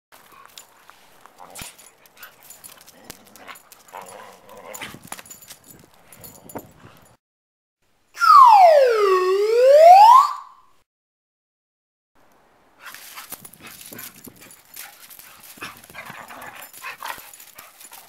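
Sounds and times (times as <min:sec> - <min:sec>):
dogs scuffling and clicking: 0:00.2 - 0:07.2, 0:12.8 - 0:18.0
sliding whistle sound effect: 0:08.2 - 0:10.6.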